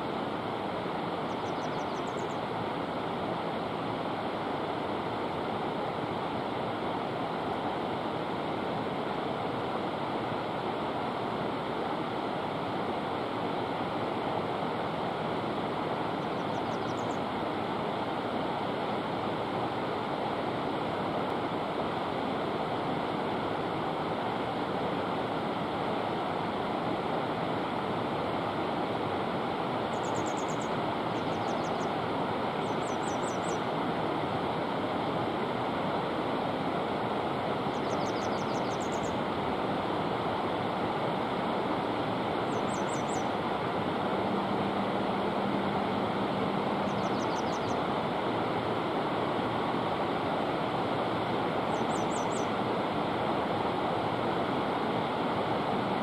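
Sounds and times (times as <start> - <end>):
rushing water-like noise: 0.0 - 56.0
faint high bird chirps: 1.2 - 2.4, 16.2 - 17.2, 29.9 - 31.9, 32.6 - 33.6, 37.7 - 39.2, 42.5 - 43.3, 46.8 - 47.8, 51.7 - 52.5.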